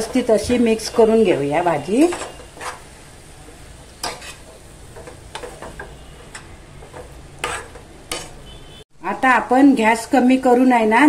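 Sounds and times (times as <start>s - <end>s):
spatula scraping pan: 0.0s - 8.8s
spatula stirring in pan: 0.0s - 8.8s
faint sizzle: 0.0s - 11.0s.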